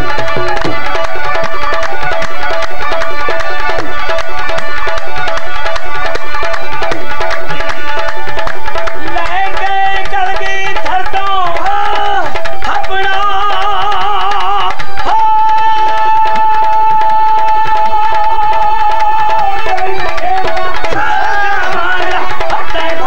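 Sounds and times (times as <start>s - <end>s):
hand drum beat: 0.0s - 23.0s
man singing high-pitched: 8.9s - 23.0s.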